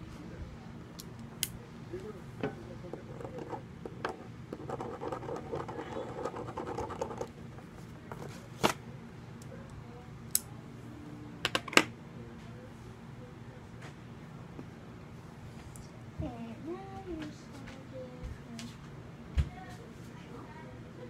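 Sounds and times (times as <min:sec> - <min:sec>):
marker scribbling on paper: 0:04.6 - 0:07.3.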